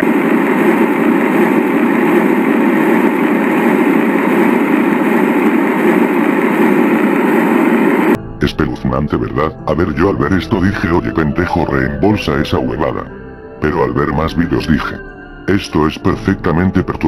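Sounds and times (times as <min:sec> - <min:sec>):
loud steady droning static: 0:00.0 - 0:08.2.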